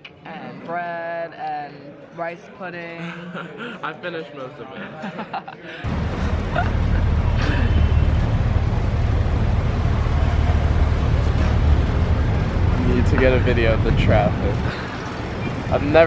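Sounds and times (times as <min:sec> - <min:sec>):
busy road traffic rumble: 0:05.8 - 0:16.0.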